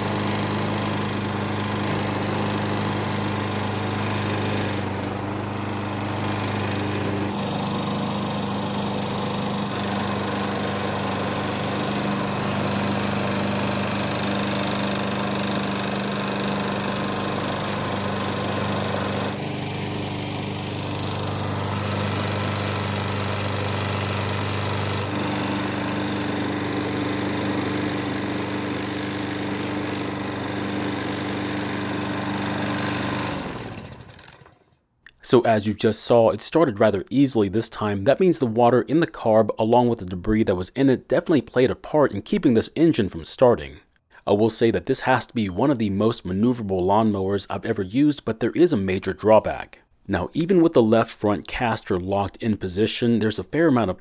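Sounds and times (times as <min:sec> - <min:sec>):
lawn mower engine running: 0:00.0 - 0:34.8.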